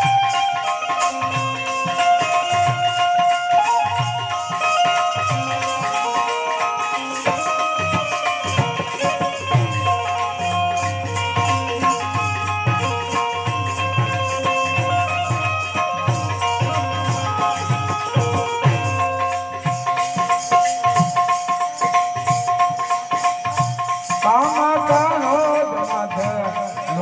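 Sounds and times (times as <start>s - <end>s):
jingling percussion: 0.0s - 27.0s
drum beat: 7.2s - 25.1s.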